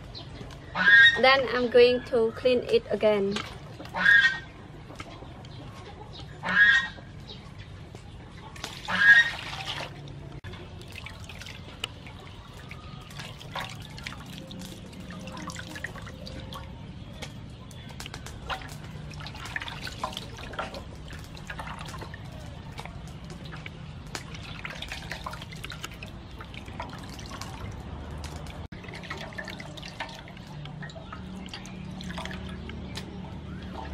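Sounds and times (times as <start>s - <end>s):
water dripping and trickling: 2.6s - 5.6s, 6.4s - 33.9s
hands squelching clam meat in water: 18.0s - 33.9s.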